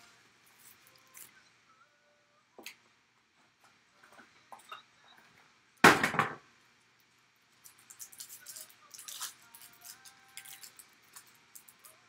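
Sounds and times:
foil pack crinkling: 7.5s - 12.0s.

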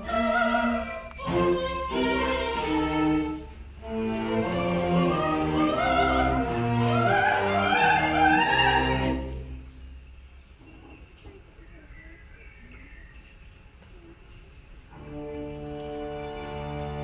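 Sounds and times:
soprano singing: 0.0s - 9.6s
string ensemble chords: 0.0s - 10.0s, 14.9s - 17.0s.

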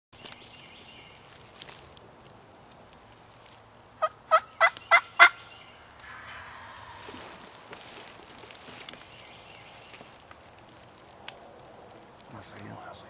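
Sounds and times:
turkey gobbling: 4.0s - 5.4s, 6.0s - 7.7s.

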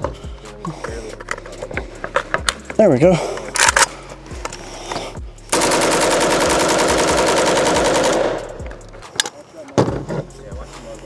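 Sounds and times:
rifle firing full auto burst: 5.5s - 8.6s.

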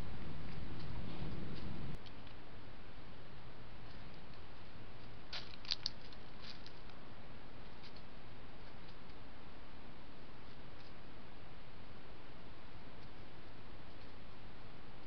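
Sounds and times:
microphone hiss: 0.0s - 15.0s
faint clicks and rustles: 3.8s - 9.3s, 12.9s - 15.0s.

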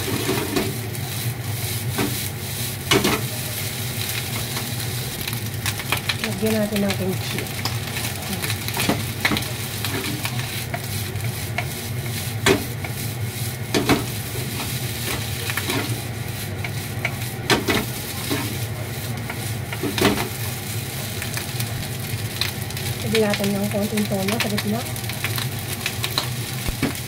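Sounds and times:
rice sizzling in a frying pan: 0.0s - 27.0s
wooden spatula scraping a pan: 8.7s - 20.4s.

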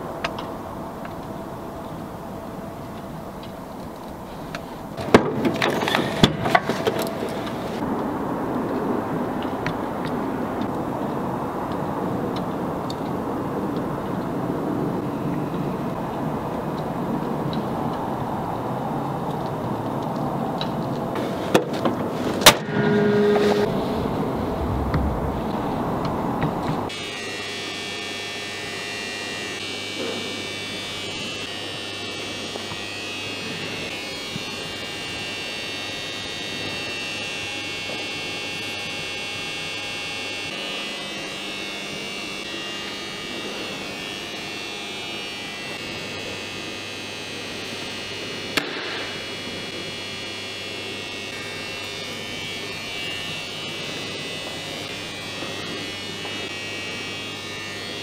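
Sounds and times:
electrical hum: 22.0s - 35.1s
high-pitched buzz: 22.5s - 58.0s.

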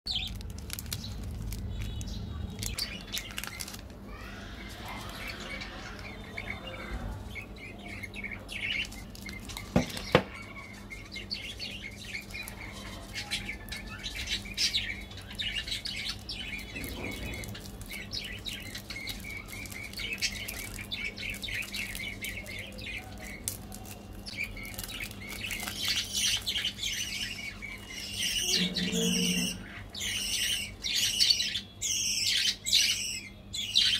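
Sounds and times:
plastic wrapper crinkling: 0.1s - 6.2s, 8.3s - 10.9s, 11.8s - 28.7s
birds chirping: 0.1s - 33.9s.

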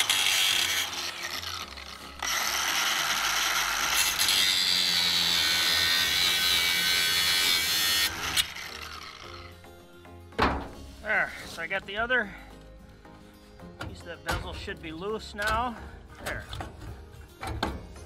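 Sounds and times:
angle grinder cutting steel: 0.0s - 9.6s.

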